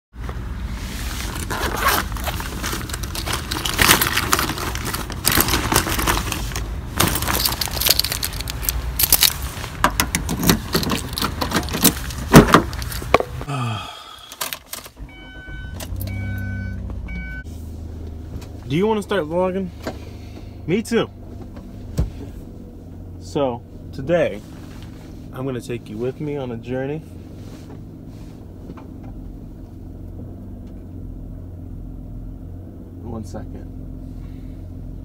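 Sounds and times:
outdoor background noise: 0.1s - 35.0s
car keys jangling: 1.4s - 13.4s
knocks and clatter: 2.4s - 13.5s
car warning chime beeping: 15.0s - 17.5s.

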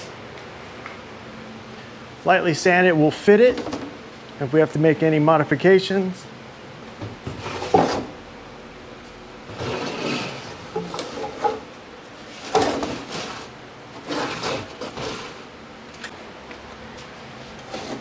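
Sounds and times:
wooden boards scraping: 7.2s - 8.2s, 9.5s - 15.4s, 17.6s - 18.0s.

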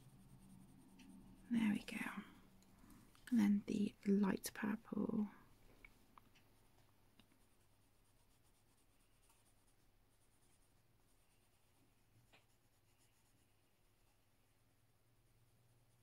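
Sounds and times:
pencil scratching on paper: 0.0s - 2.2s, 7.4s - 14.3s.

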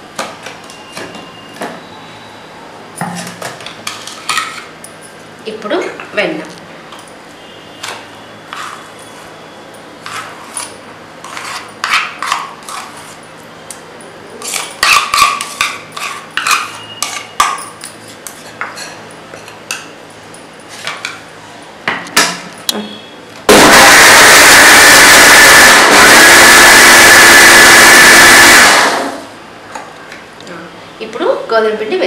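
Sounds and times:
mixer grinder motor running: 23.5s - 29.3s.

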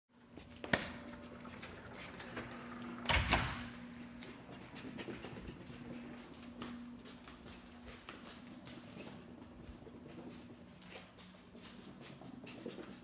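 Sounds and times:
low hum: 0.2s - 12.6s
puppy paws pattering on carpet: 4.1s - 13.0s.

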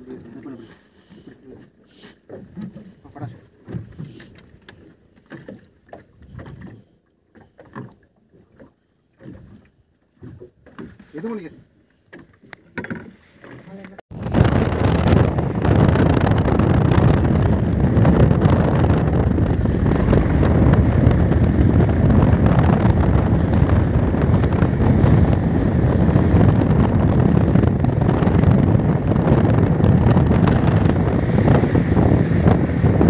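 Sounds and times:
boat hull through water: 0.0s - 33.0s
outboard motor running: 0.0s - 33.0s
wind rushing over microphone: 14.1s - 33.0s.

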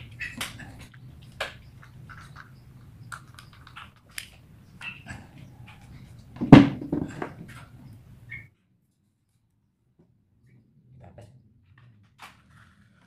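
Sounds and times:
plastic parts clicking and rattling: 0.4s - 4.4s
loud knock: 6.4s - 7.3s.

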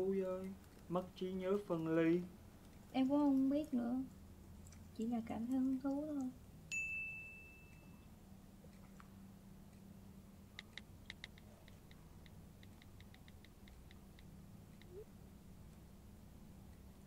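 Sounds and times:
low room hum: 0.0s - 17.0s
laptop keyboard typing: 10.6s - 15.0s.

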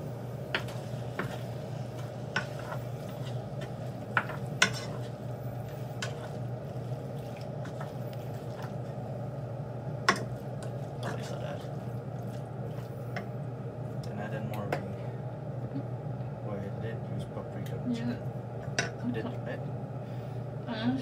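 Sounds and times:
steady low hum: 0.0s - 21.0s
chicken and onions mixed by hand: 0.5s - 9.3s
soft squishing: 0.5s - 14.1s.

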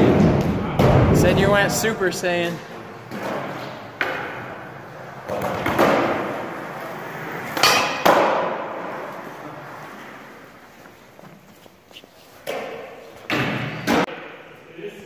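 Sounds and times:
skateboard wheels rolling on wood: 2.7s - 13.8s.

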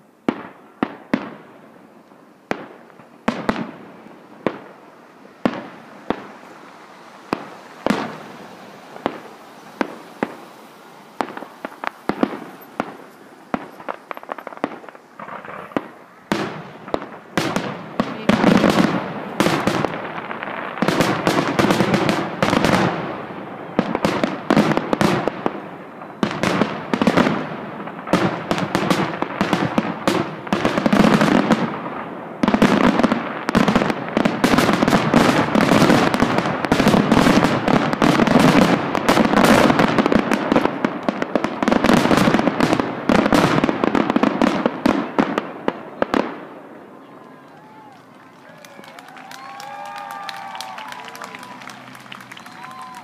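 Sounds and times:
fireworks bursting: 0.0s - 53.0s.

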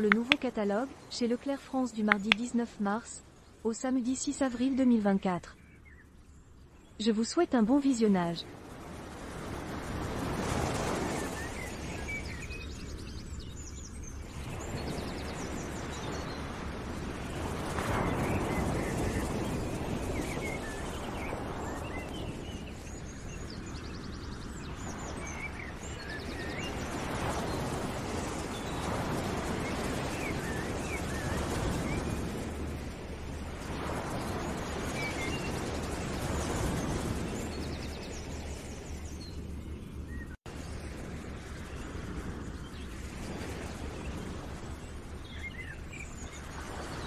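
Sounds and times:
small birds chirping: 0.0s - 8.5s, 17.1s - 32.8s, 33.6s - 47.0s
outdoor background noise: 0.0s - 47.0s.

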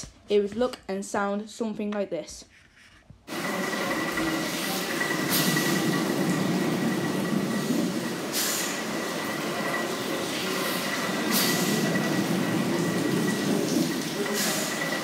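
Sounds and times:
thin high whine: 3.3s - 15.0s
steam hiss: 3.4s - 15.0s.

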